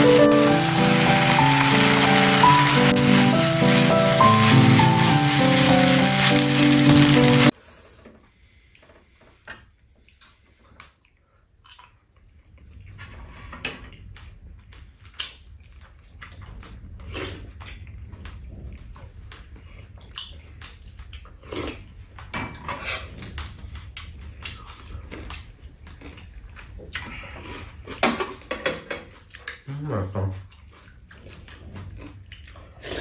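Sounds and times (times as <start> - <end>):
chewing: 10.0 - 28.0, 30.4 - 33.0.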